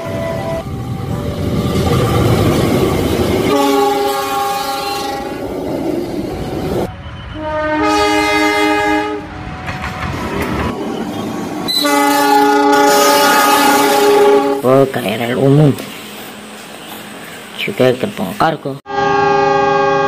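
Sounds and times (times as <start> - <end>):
locomotive passing rumble: 0.0 - 18.4
locomotive air horn blast: 3.5 - 5.4, 7.3 - 9.8, 11.7 - 14.7, 18.8 - 20.0.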